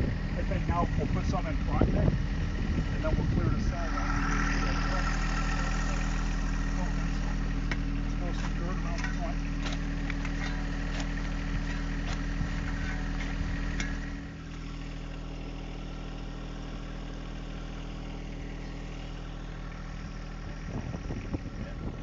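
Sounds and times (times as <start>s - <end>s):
tractor diesel engine idling: 0.0s - 22.0s
shovel scraping dirt and stones: 3.8s - 14.7s.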